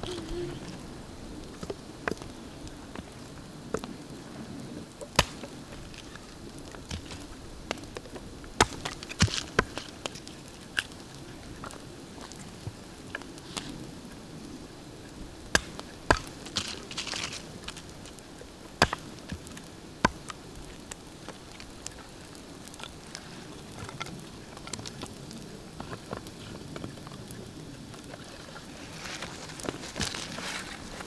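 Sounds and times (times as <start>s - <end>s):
campfire crackling: 0.0s - 31.0s
kindling sticks laid on fire: 4.9s - 13.9s, 15.4s - 31.0s.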